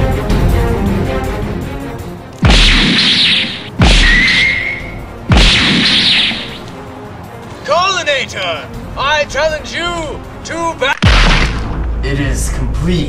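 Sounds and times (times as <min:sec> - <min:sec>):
background music: 0:00.0 - 0:13.0
cinematic boom hits: 0:11.0 - 0:12.0.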